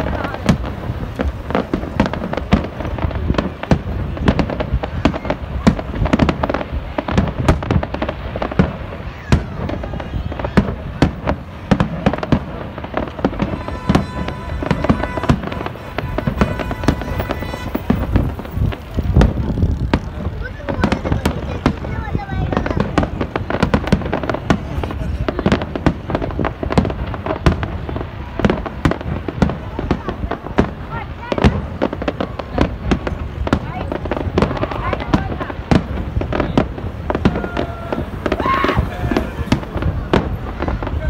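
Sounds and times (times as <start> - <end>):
fireworks bursts and bangs: 0.0 - 41.0.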